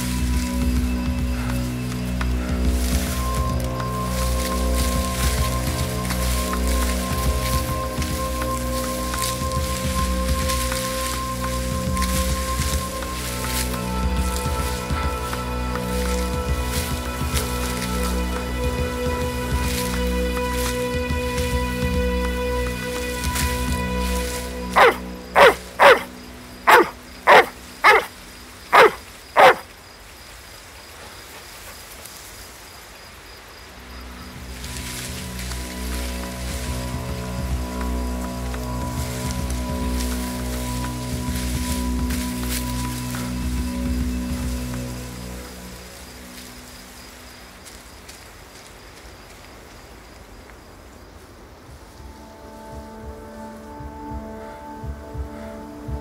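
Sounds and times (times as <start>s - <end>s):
steady hiss: 0.0s - 56.0s
high insect chirping: 23.8s - 55.8s
large dog barking: 24.8s - 26.1s, 26.7s - 28.1s, 28.7s - 29.6s.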